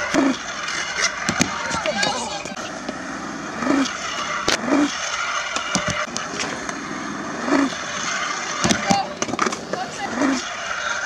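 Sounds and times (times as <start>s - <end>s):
scooter wheels rolling on concrete: 0.0s - 11.0s
scooter deck knocking on concrete: 1.2s - 2.1s.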